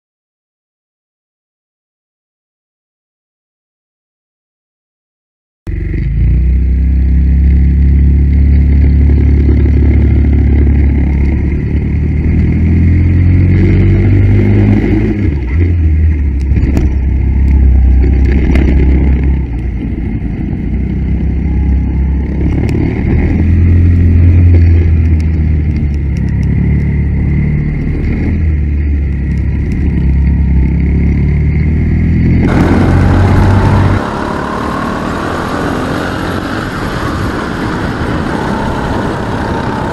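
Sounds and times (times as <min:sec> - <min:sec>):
go-kart engine revving: 0:30.4 - 0:39.9.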